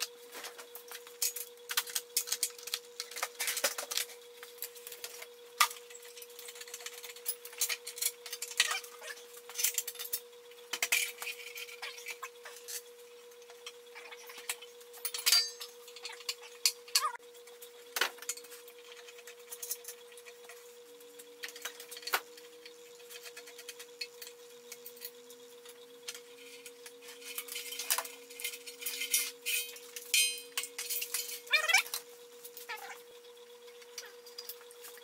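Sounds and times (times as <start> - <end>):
steady hum: 0.0 - 35.0
metal parts clinking and knocking: 14.3 - 17.2, 26.5 - 32.0.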